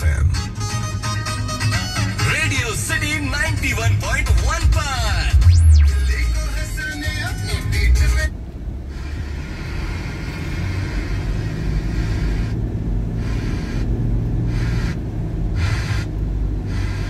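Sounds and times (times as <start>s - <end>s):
engine and road rumble: 0.0s - 17.0s
tyres hissing on wet road: 8.9s - 17.0s.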